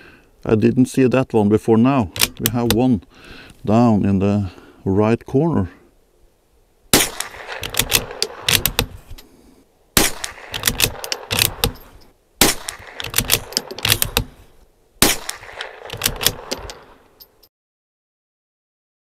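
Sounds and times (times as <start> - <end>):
rifle bolt clicking: 2.2 - 2.8, 7.0 - 9.3, 10.0 - 14.4, 15.0 - 17.4
rifle shots: 6.9 - 9.0, 10.0 - 14.4, 15.0 - 17.1.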